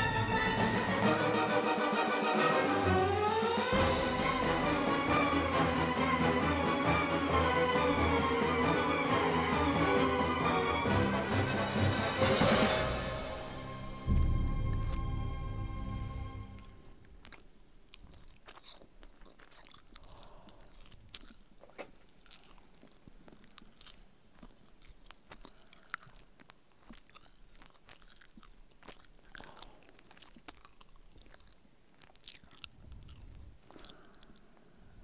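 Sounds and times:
person chewing food: 16.5 - 35.0.

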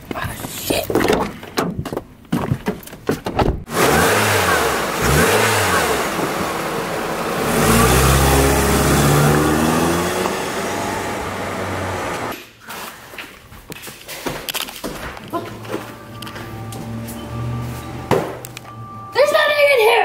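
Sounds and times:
car accelerating: 3.7 - 12.4
car engine revving: 3.7 - 12.4.

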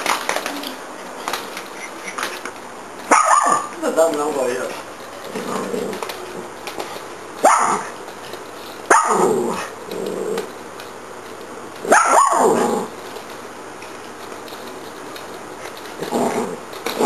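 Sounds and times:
small dogs barking: 3.1 - 3.8, 7.4 - 8.0, 8.9 - 9.7, 11.8 - 12.8
dog growling: 5.2 - 6.5, 9.1 - 10.6, 12.3 - 13.0, 16.0 - 17.0.

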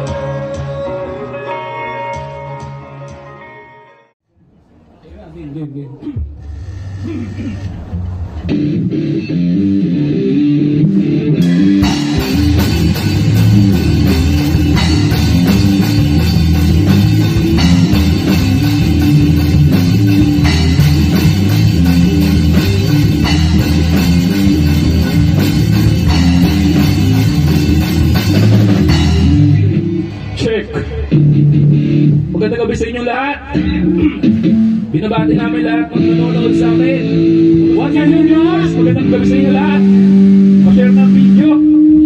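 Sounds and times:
bass guitar: 0.0 - 3.6, 6.1 - 42.0
electric guitars: 0.0 - 3.9, 7.0 - 42.0
drums and cymbals: 11.4 - 32.1.

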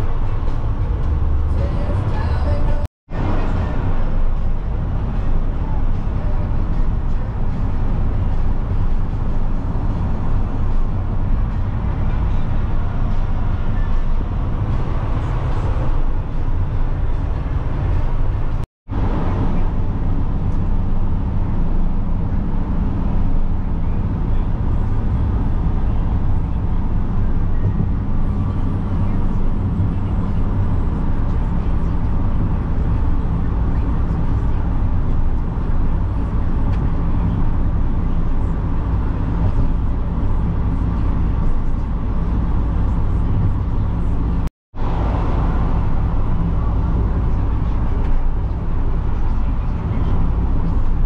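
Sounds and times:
truck engine drone: 0.0 - 51.0.

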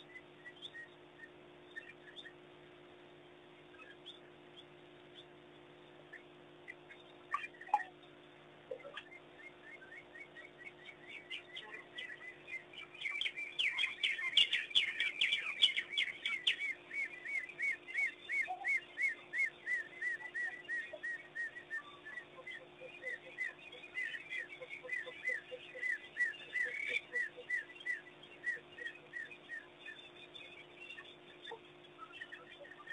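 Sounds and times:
wild dogs twittering: 8.7 - 32.9.

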